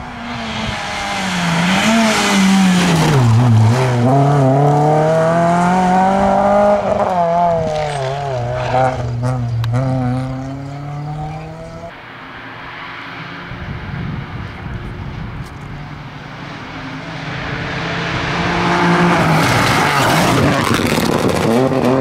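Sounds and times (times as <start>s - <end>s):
rally car passing at speed: 0.0s - 22.0s.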